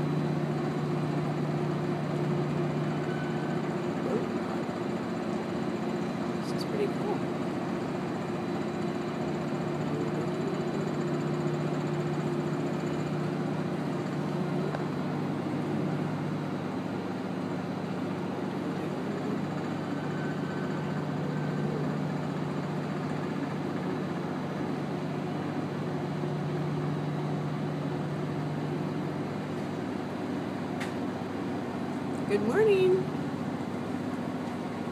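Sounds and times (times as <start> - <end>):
boat engine droning: 0.0 - 34.9.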